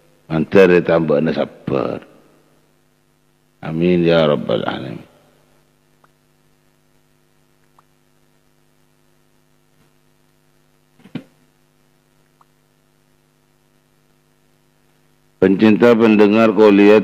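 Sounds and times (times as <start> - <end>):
low electrical mains hum: 0.0 - 17.0
faint ticks: 7.6 - 8.0.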